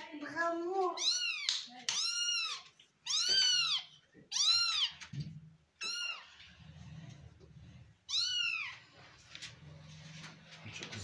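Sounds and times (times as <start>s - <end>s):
kitten meowing: 1.0s - 5.0s, 5.8s - 6.3s.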